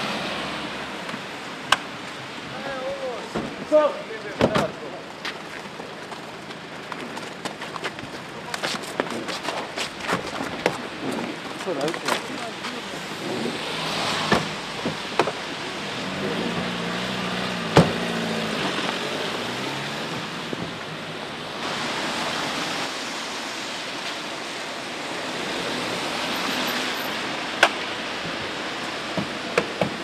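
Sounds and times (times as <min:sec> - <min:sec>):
rain hissing on wet street: 0:00.0 - 0:30.0
car engine humming: 0:12.5 - 0:22.9.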